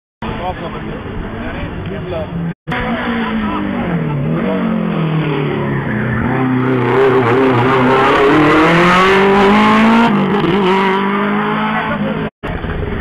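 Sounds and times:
race car engine revving: 0:02.4 - 0:12.3.

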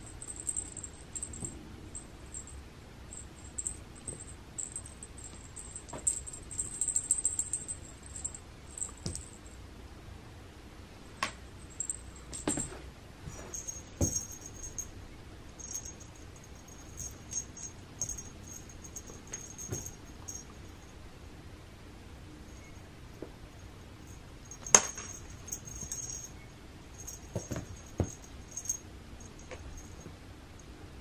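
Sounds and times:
toy lure jingling and rustling: 0:00.0 - 0:09.4, 0:13.5 - 0:14.9, 0:15.6 - 0:20.7, 0:24.4 - 0:26.4, 0:27.0 - 0:30.0.

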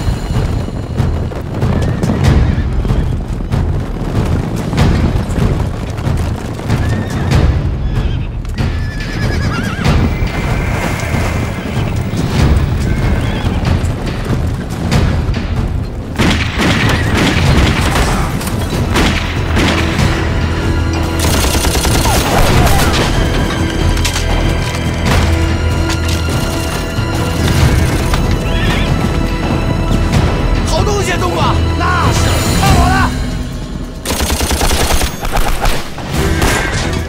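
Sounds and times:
heavy thuds and impacts: 0:00.0 - 0:08.8, 0:09.8 - 0:21.5
dramatic action music: 0:00.0 - 0:37.0.

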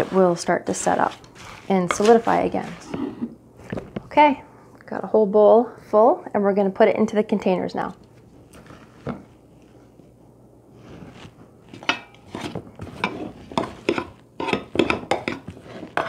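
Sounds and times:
metal spoon scraping a bowl: 0:00.0 - 0:03.3, 0:11.8 - 0:16.0.

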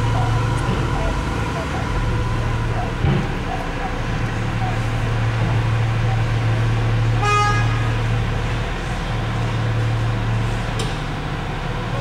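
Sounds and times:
low engine hum: 0:00.0 - 0:12.0
vehicle horn toot: 0:07.2 - 0:08.0.

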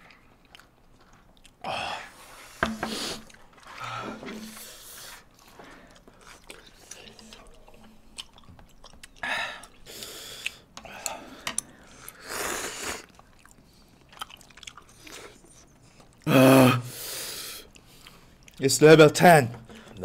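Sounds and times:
noodles slurped and chewed: 0:00.0 - 0:16.3, 0:16.9 - 0:18.6.

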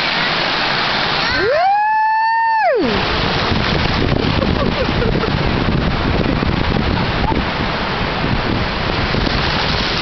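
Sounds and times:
shallow surf: 0:00.0 - 0:10.0
wind buffeting microphone: 0:02.8 - 0:10.0.

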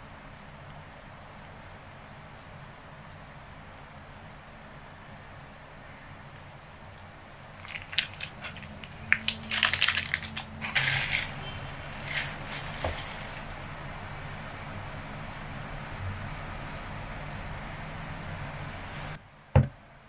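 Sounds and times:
thin plastic crinkling: 0:07.5 - 0:13.6.

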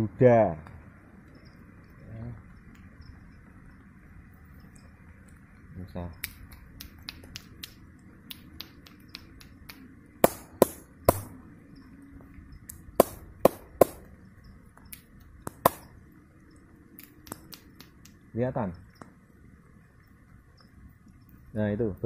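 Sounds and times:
faint background hiss: 0:00.0 - 0:22.0
sharp clicks and taps: 0:06.2 - 0:11.3, 0:12.6 - 0:14.1, 0:14.7 - 0:15.9, 0:17.0 - 0:18.2.

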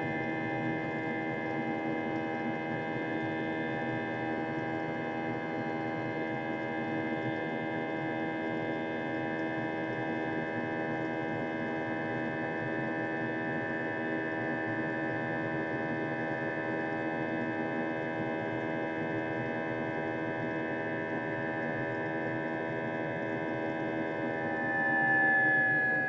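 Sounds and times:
jet engines droning: 0:20.6 - 0:26.0.

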